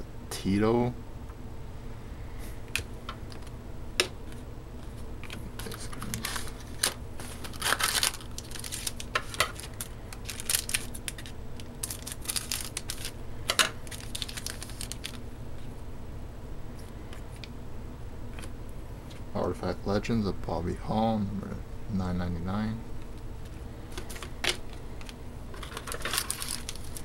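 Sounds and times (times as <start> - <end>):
wrapper crinkling and tearing: 5.3 - 15.2, 25.0 - 27.0.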